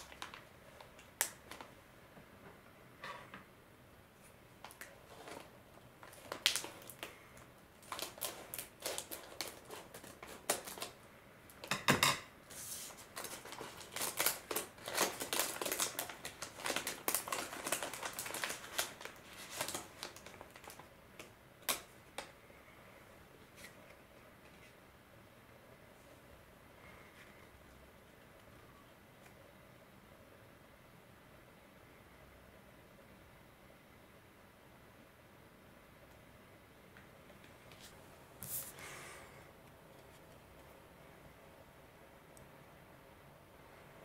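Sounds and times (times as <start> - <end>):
plastic wrapper crinkling: 0.0 - 1.8, 4.6 - 11.7, 12.5 - 22.4.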